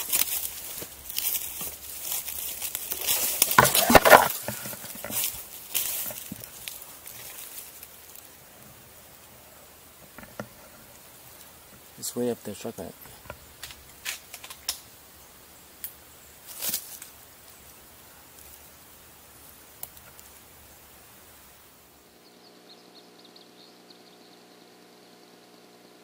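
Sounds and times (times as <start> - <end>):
sharp light clicks and snaps: 13.6 - 14.8, 19.8 - 20.3
steady electrical hum: 18.6 - 26.0
faint high insect buzzing: 18.7 - 26.0.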